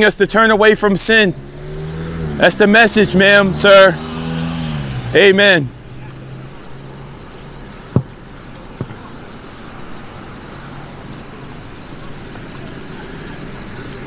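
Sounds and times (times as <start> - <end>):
cars driving by: 0.0 - 14.0
sharp knocks: 7.9 - 8.2.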